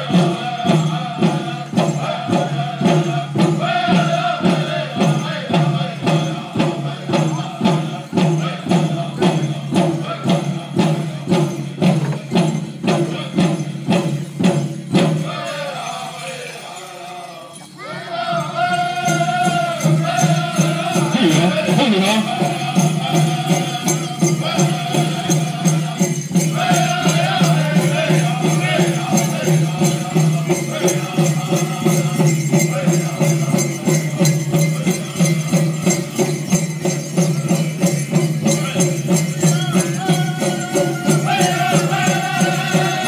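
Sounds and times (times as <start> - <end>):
group chanting: 0.0 - 11.0, 15.0 - 36.3, 38.6 - 43.0
large drum beat: 0.0 - 15.7, 18.6 - 43.0
bells and jingles rattling: 0.0 - 43.0.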